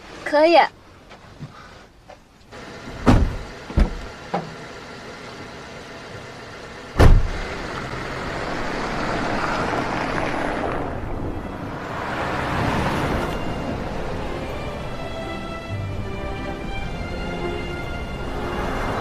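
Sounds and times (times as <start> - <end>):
car engine pulling away: 2.5 - 19.0
car door slamming: 3.0 - 4.6, 7.0 - 7.4.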